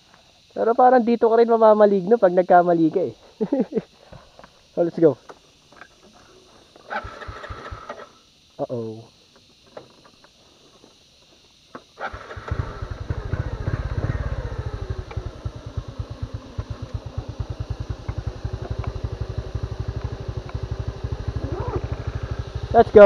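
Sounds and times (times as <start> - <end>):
motorcycle engine starting and running: 5.7 - 8.2, 11.8 - 23.0.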